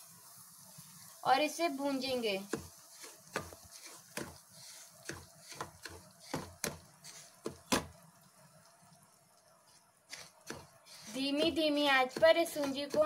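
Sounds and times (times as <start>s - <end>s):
wooden spatula tapping a pan: 2.4s - 4.4s, 5.0s - 8.0s, 10.1s - 10.8s, 11.4s - 13.0s.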